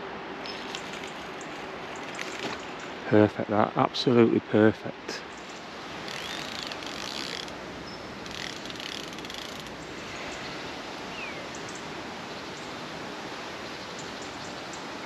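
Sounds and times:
fishing reel whirring and clicking: 6.0s - 7.6s, 8.2s - 9.8s.

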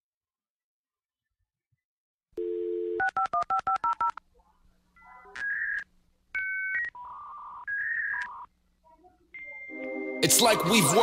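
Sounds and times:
telephone dial tone: 2.4s - 4.2s
touch-tone dialing beeps: 2.4s - 4.2s, 5.0s - 8.5s.

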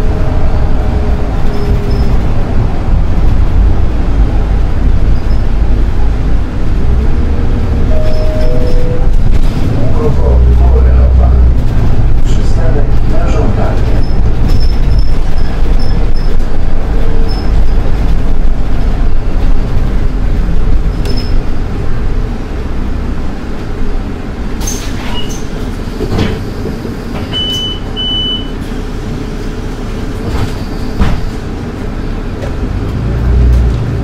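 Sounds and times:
bus engine rumbling: 0.0s - 34.0s
short high beeps: 7.9s - 9.2s.

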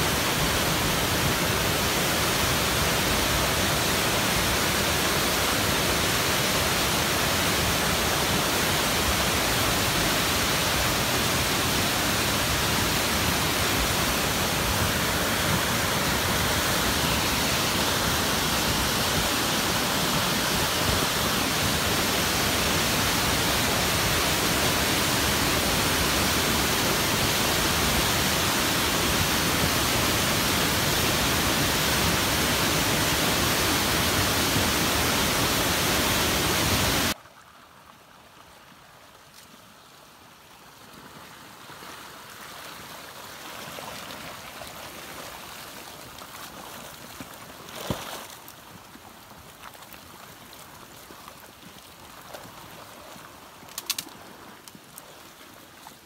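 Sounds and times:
muddy water rushing down channel: 0.0s - 37.2s, 39.9s - 56.0s.

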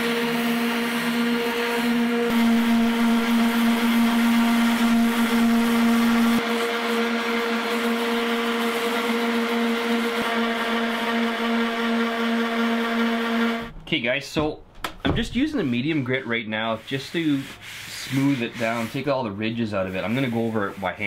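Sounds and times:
electric palm sander running: 0.0s - 13.7s.

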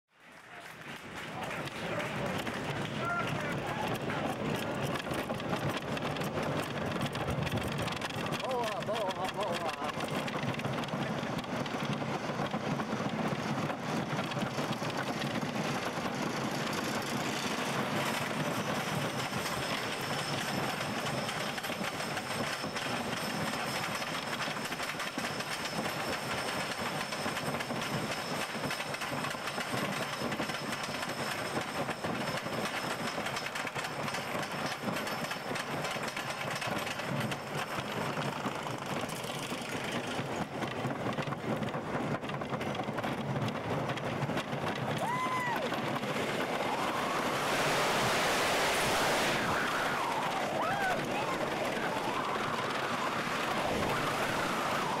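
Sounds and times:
roller coaster lift chain clatter: 0.2s - 55.0s
thin high whine: 46.6s - 55.0s.

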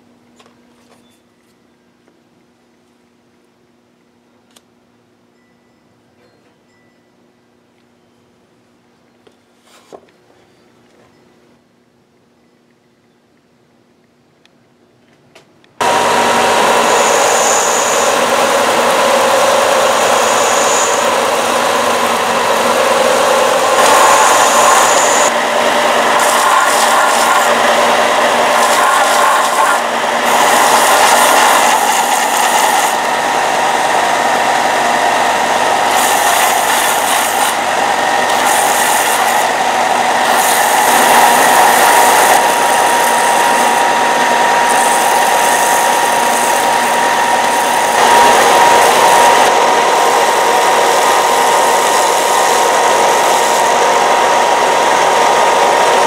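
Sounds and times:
belt grinder sanding wood: 15.8s - 56.0s.

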